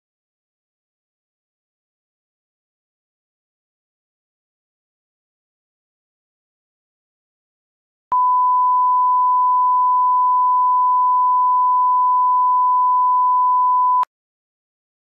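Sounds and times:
test tone beep: 8.1s - 14.1s.

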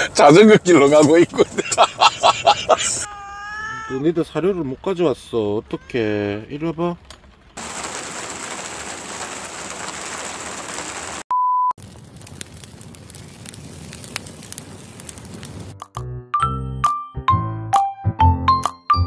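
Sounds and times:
rain falling on ground: 7.0s - 11.2s, 11.8s - 15.8s.

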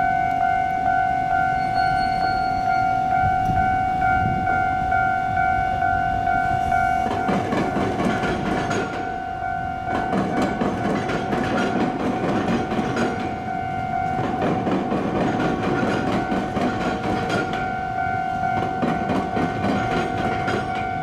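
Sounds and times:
level crossing warning bell: 0.0s - 21.0s
train wheels clattering: 6.5s - 9.2s, 9.8s - 21.0s.

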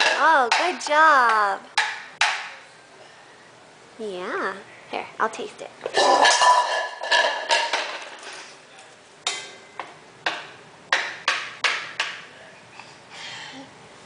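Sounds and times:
wooden spoon knocking in frying pan: 0.0s - 2.6s, 9.3s - 12.3s.

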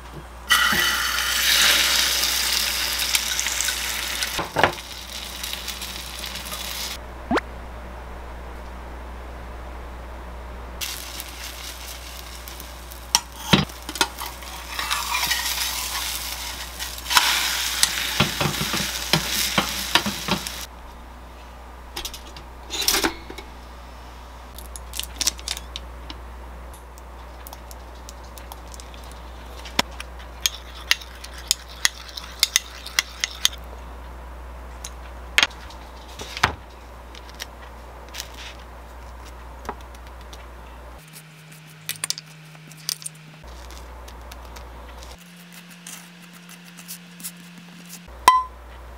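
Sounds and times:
food sizzling in a pan: 0.5s - 7.0s, 10.8s - 20.7s
metal spoon scraping a bowl: 14.2s - 16.2s.

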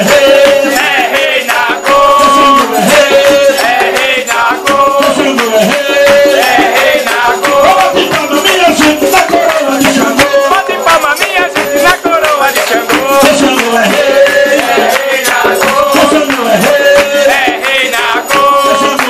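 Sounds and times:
group singing a ritual chant: 0.0s - 19.0s
hand percussion beat: 0.0s - 19.0s.

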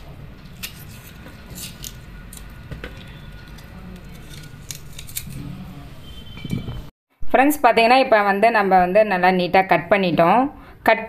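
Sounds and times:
knife cutting fruit: 0.5s - 5.6s.

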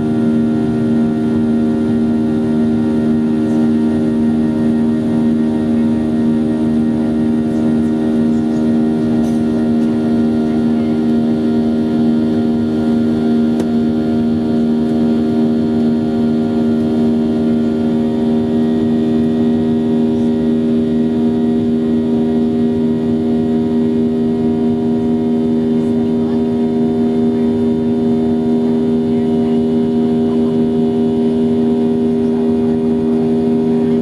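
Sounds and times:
jet engines droning in cabin: 0.0s - 34.0s.

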